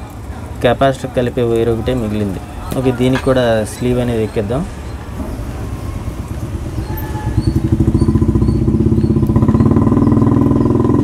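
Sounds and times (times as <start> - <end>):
engine running with fast pulse: 7.1 - 11.0.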